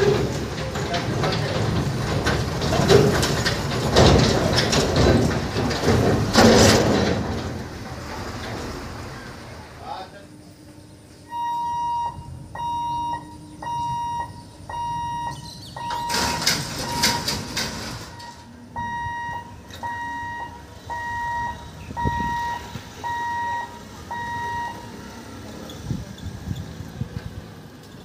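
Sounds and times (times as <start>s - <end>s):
level crossing electronic beeps: 11.3s - 17.4s, 18.0s - 24.9s.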